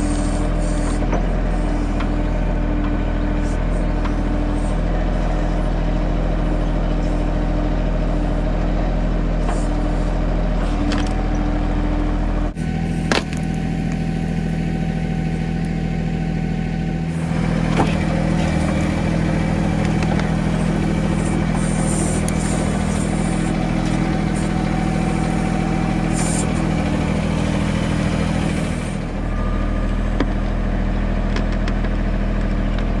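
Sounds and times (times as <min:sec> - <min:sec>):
tractor diesel engine running: 0:00.0 - 0:33.0.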